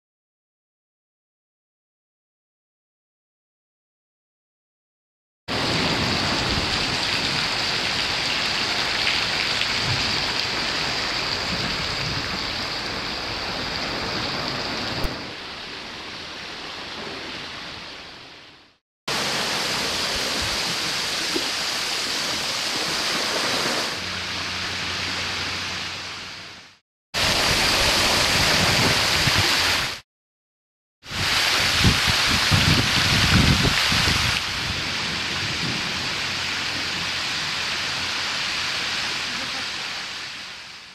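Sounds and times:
waterfall spattering: 0:05.5 - 0:15.4, 0:19.1 - 0:26.1, 0:27.2 - 0:30.0, 0:31.1 - 0:35.4.

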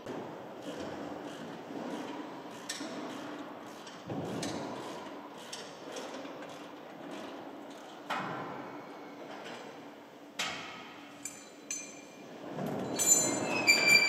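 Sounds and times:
metal tools knocking and clinking: 0:11.2 - 0:12.2.

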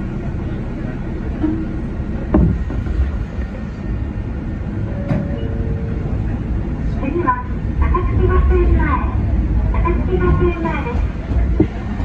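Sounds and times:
train cab rumble: 0:00.0 - 0:12.0.

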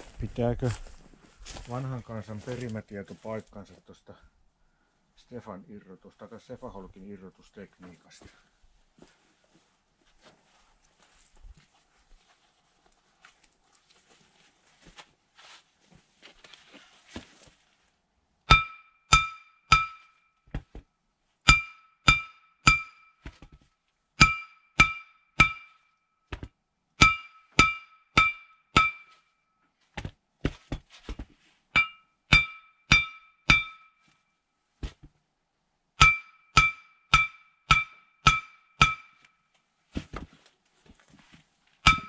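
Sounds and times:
hammer blows on steel: 0:18.5 - 0:20.1, 0:24.2 - 0:25.8, 0:27.0 - 0:29.2, 0:31.8 - 0:34.0, 0:36.0 - 0:39.2.

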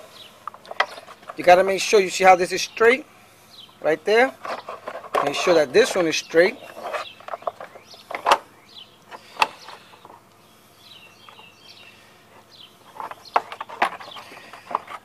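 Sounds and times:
faint bird chirps: 0:06.1 - 0:14.6.

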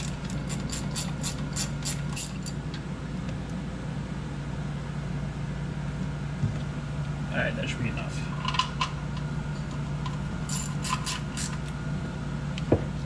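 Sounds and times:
ratcheting wrench clicking: 0:00.0 - 0:02.6, 0:10.5 - 0:11.6.

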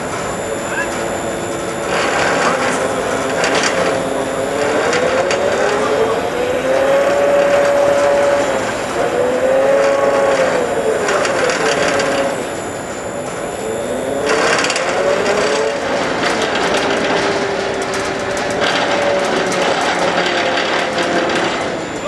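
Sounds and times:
steady rough noise: 0:00.0 - 0:22.0
winch motor whining: 0:00.0 - 0:22.0
scattered clicks: 0:00.1 - 0:22.0.

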